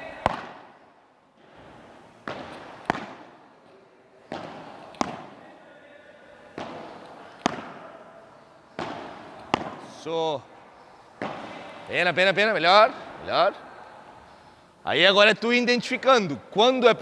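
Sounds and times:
ball bouncing on court: 0.0s - 0.7s, 2.2s - 3.4s, 4.3s - 5.5s, 6.5s - 8.0s, 8.7s - 10.0s, 11.2s - 11.8s
padel ball struck by rackets: 0.2s - 0.7s, 2.2s - 3.4s, 4.3s - 5.4s, 6.5s - 8.0s, 8.7s - 9.9s, 11.2s - 11.8s.

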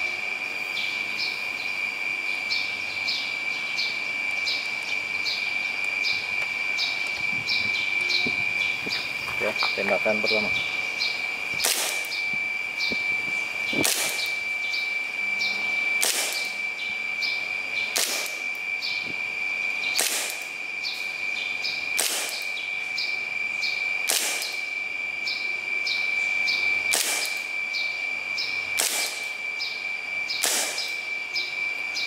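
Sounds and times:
airsoft pistol firing: 11.6s - 12.2s, 13.8s - 14.3s, 16.0s - 16.5s, 17.9s - 18.5s, 20.0s - 20.5s, 22.0s - 22.5s, 24.1s - 24.6s, 26.9s - 27.5s, 28.8s - 29.3s, 30.4s - 31.0s.

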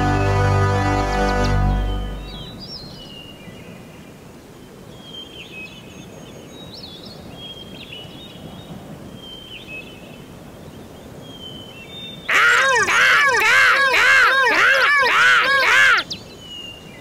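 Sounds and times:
birds chirping: 1.0s - 3.7s, 12.2s - 17.0s.

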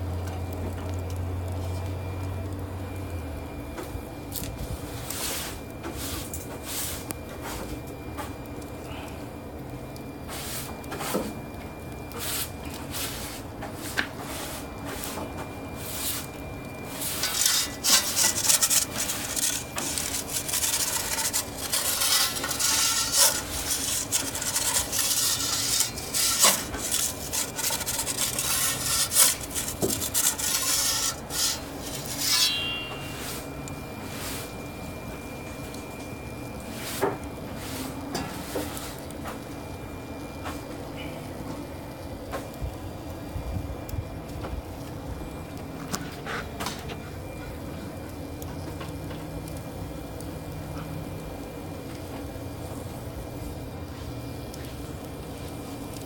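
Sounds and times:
metal scraping and rubbing: 16.9s - 33.5s
short squeak: 25.2s - 33.5s.

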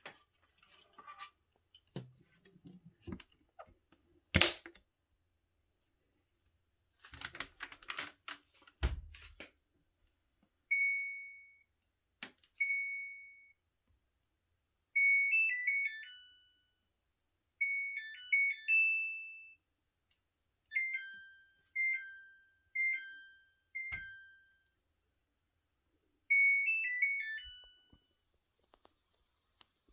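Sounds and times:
washer control panel beeping: 10.7s - 11.5s, 23.8s - 24.3s
chime tunes: 20.7s - 24.7s, 26.3s - 28.0s.

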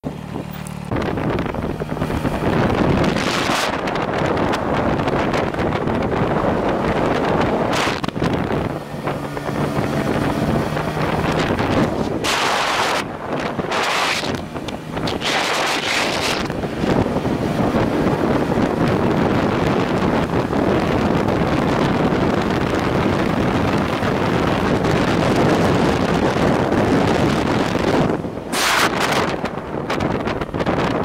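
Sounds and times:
motorcycle engine: 0.0s - 31.0s
road noise: 0.0s - 31.0s
wind buffeting microphone: 0.0s - 31.0s.

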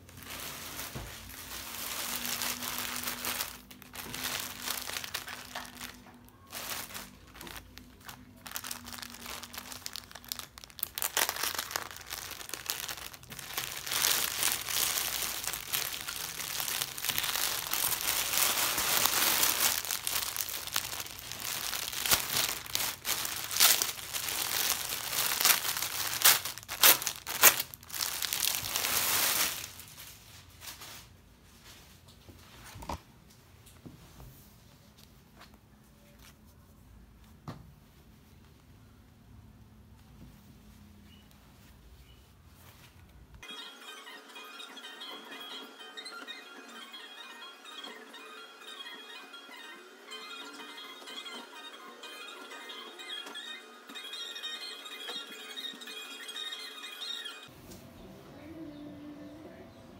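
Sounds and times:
plastic bag crinkling: 0.0s - 31.0s.

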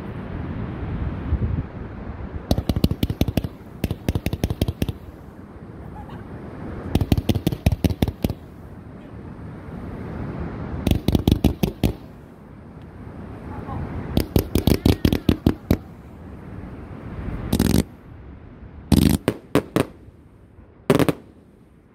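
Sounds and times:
firework cracks and bangs: 2.5s - 5.1s, 6.9s - 8.5s, 10.8s - 12.1s, 14.2s - 15.9s, 18.9s - 20.0s, 20.9s - 21.4s.

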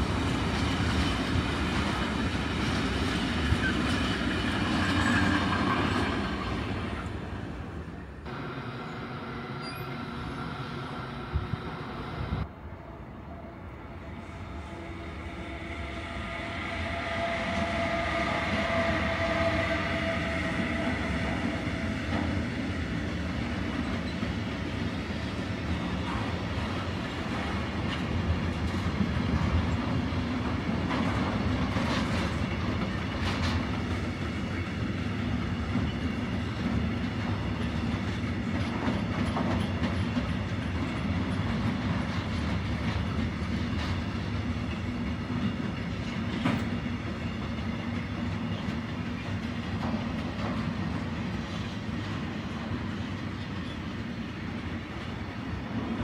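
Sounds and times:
train wheels clacking on rails: 0.0s - 7.2s, 15.6s - 56.0s
steady tonal whine: 8.3s - 12.5s.

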